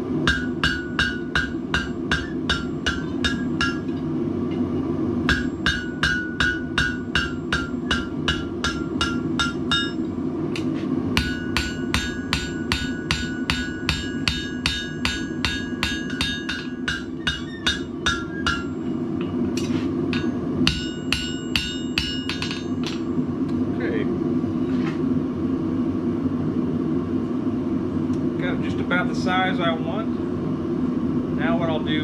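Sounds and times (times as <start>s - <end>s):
steady low hum: 0.0s - 32.0s
hammer striking steel on anvil: 0.2s - 4.6s, 5.2s - 23.2s.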